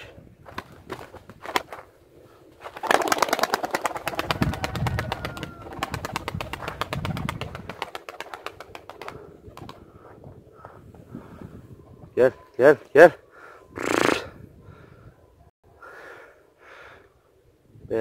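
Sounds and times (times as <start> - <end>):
pigeon wings clattering: 0.4 - 1.9, 2.6 - 9.8.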